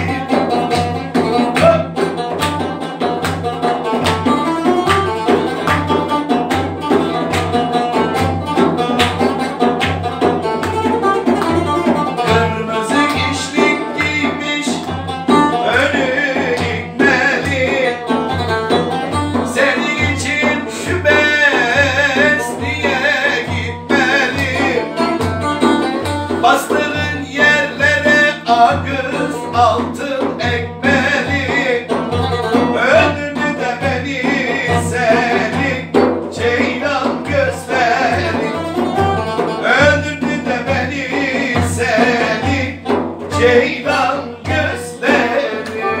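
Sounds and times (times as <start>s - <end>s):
man singing folk song: 0.0s - 46.0s
plucked lute: 0.0s - 46.0s.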